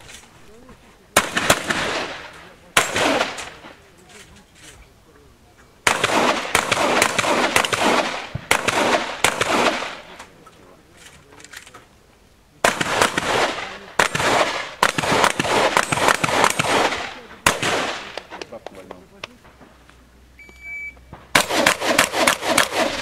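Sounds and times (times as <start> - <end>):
shotgun shots echoing: 1.1 - 4.0, 5.8 - 10.4, 12.6 - 18.9, 21.1 - 23.0.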